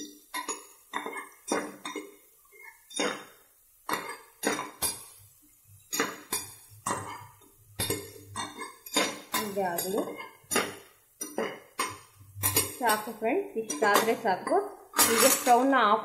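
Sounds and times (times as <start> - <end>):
food frying in oil: 0.0 - 15.9
metal ladle scraping metal pot: 11.4 - 15.6.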